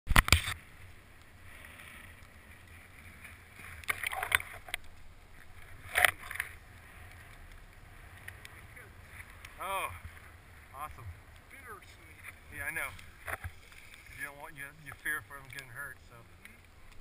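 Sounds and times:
low wind rumble: 0.6s - 17.0s
camera handling rustling and bumping: 5.8s - 6.6s.

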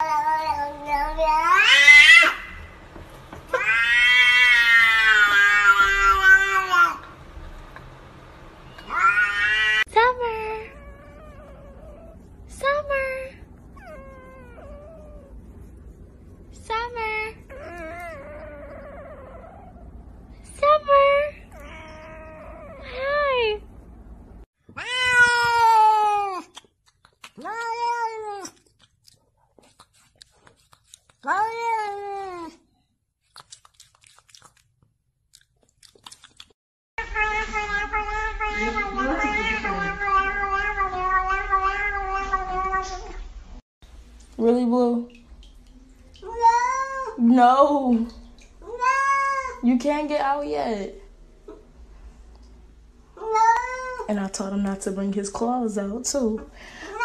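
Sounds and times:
cat yowling: 0.0s - 2.6s, 3.5s - 7.0s, 8.8s - 9.9s, 24.8s - 26.5s, 37.0s - 43.2s.

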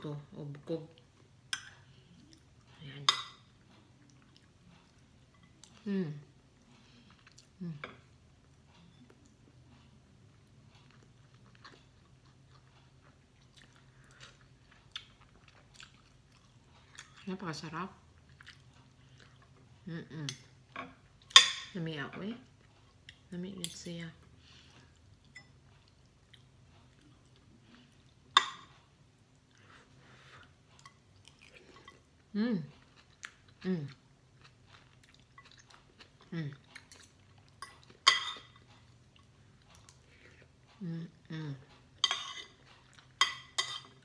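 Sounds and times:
low room hum: 0.0s - 44.0s
soft eating noises: 0.0s - 44.0s
person chewing: 3.5s - 17.2s, 18.1s - 19.8s, 24.6s - 44.0s
cutlery clinking on plate: 42.0s - 42.6s.

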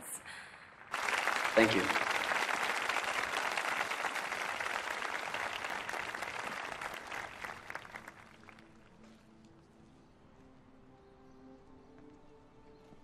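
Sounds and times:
crowd applauding: 0.8s - 8.8s
faint music tones: 6.3s - 13.0s.

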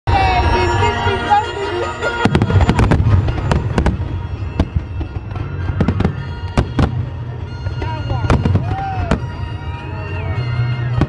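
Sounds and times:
fireworks bangs: 2.0s - 11.0s.

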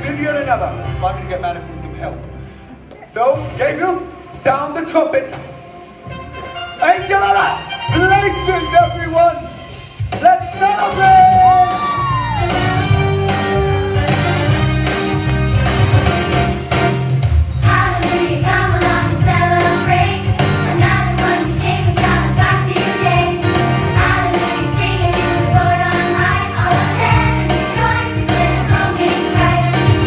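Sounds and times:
children's choir singing: 17.6s - 30.0s.

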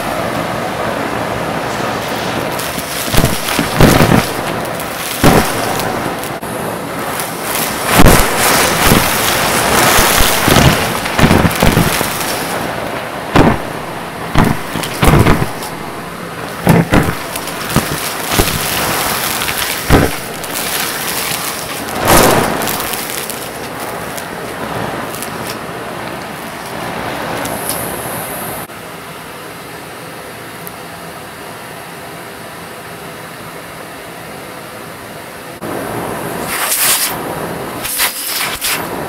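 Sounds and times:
debris clacking in nozzle: 7.1s - 12.6s, 16.6s - 24.3s.

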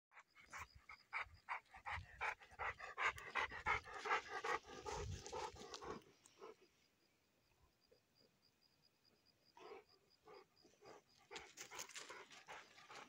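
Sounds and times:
dog panting: 0.4s - 6.6s, 9.6s - 13.0s.

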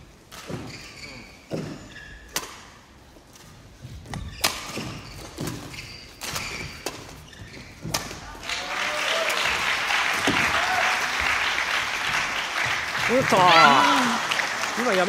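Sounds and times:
shoe squeaks: 0.4s - 8.3s
footfalls on court floor: 9.6s - 13.9s.

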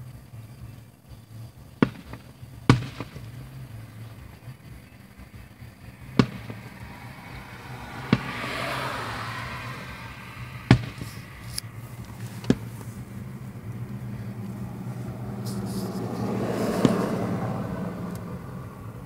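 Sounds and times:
firework shells booming: 1.7s - 5.0s, 5.6s - 13.1s.

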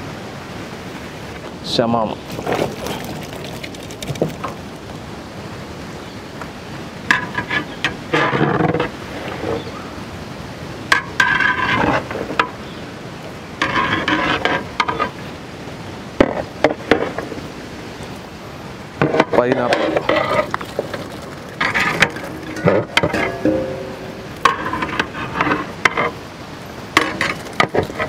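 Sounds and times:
steel plate scraping metal pot: 7.1s - 9.7s, 11.0s - 12.6s, 13.6s - 15.2s, 19.0s - 26.2s
sharp knocks: 21.9s - 24.8s.

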